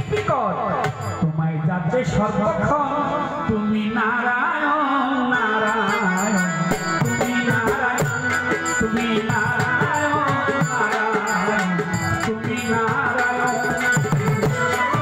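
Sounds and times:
violin melody: 5.4 - 15.0
hand drum rhythm: 6.4 - 15.0.

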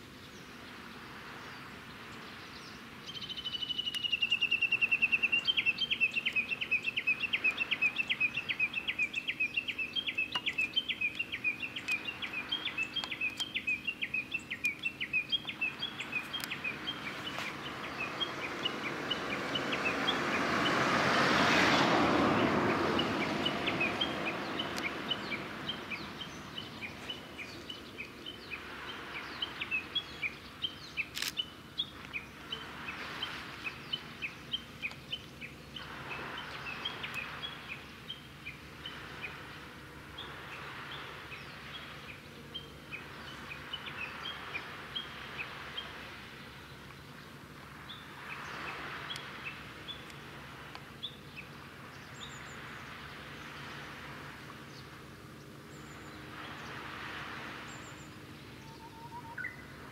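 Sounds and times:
broad whoosh of noise: 0.0 - 59.9
bird chirping: 2.3 - 20.4, 57.7 - 59.7.

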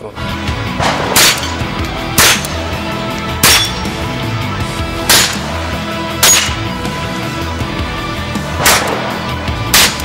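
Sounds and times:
background music: 0.0 - 10.0
rifle shots: 0.8 - 1.6, 8.6 - 10.0.

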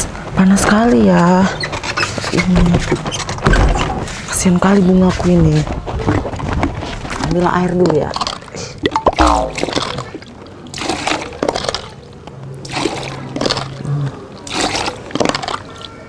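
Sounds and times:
water splashes: 8.2 - 11.9.

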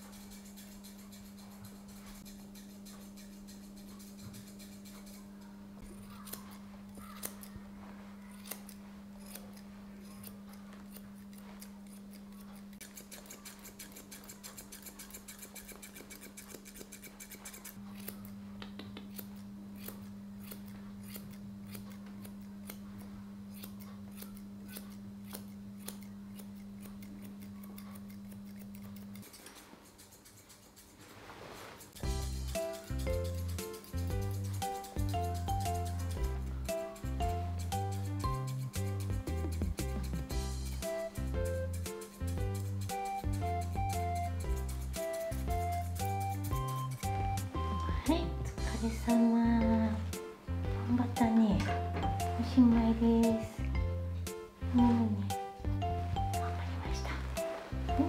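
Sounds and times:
scissors snipping fur: 0.0 - 7.6, 8.2 - 31.1, 31.9 - 50.4
low steady hum: 32.0 - 58.0.

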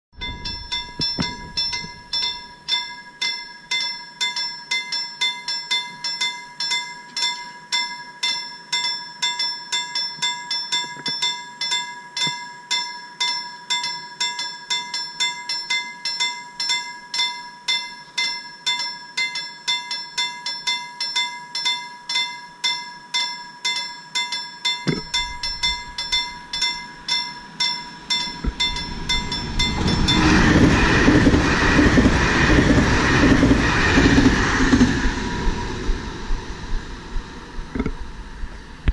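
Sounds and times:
train passing at speed: 0.2 - 2.8, 25.0 - 38.9
level crossing warning bell: 0.2 - 37.6.

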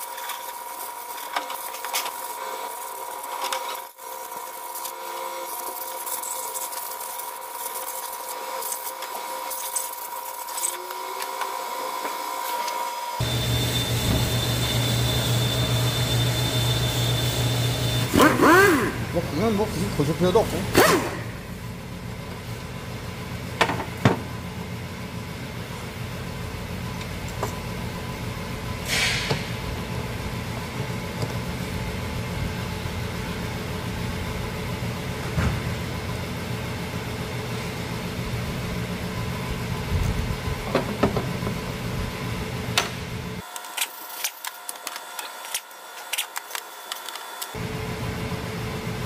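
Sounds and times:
short hiss: 28.9 - 29.3.

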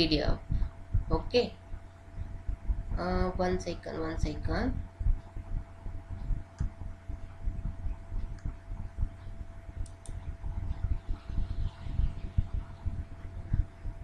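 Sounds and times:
low thumps and rumble: 0.0 - 14.0
thin steady hum: 0.0 - 14.0
mouse clicking: 9.8 - 10.2.

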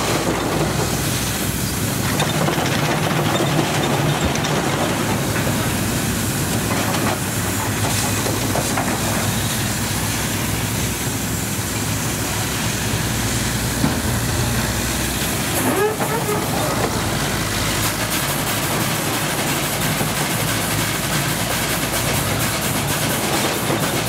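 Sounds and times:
steam hiss: 5.2 - 24.0.

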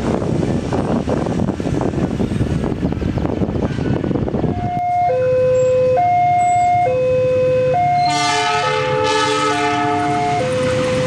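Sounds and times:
two-tone warning alarm: 4.5 - 11.0
train horn chord: 7.3 - 11.0.

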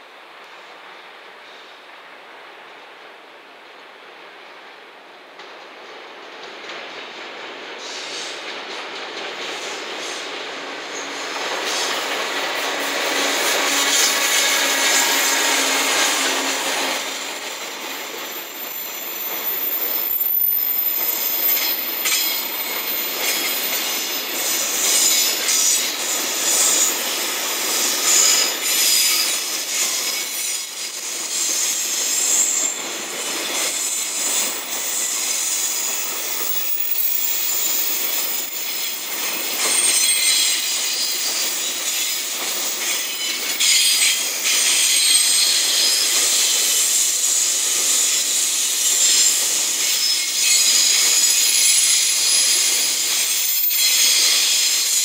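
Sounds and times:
train wheels rumbling on rails: 0.2 - 55.0
high-pitched wheel squeal: 39.6 - 41.8, 48.9 - 55.0.

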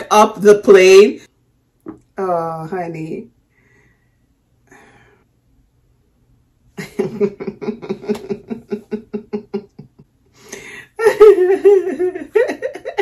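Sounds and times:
woman laughing: 6.8 - 13.0.

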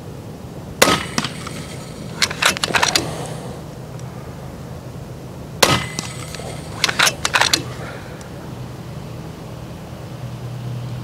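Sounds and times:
air rifle shot: 0.8 - 3.7, 5.6 - 8.2.

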